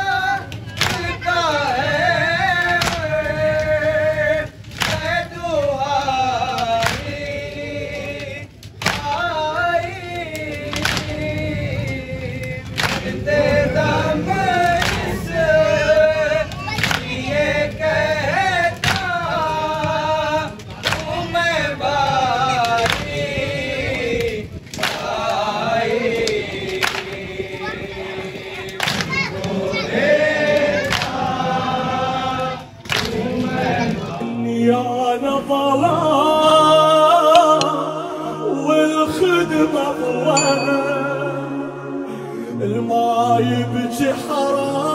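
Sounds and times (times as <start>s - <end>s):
men chanting in chorus: 0.0s - 44.9s
men reciting a lament: 0.0s - 44.9s
music with long held notes: 33.2s - 44.9s.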